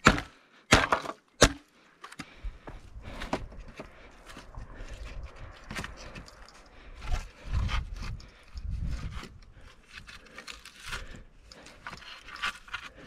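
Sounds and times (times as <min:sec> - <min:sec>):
wooden poles knocking and scraping: 0:00.0 - 0:04.6.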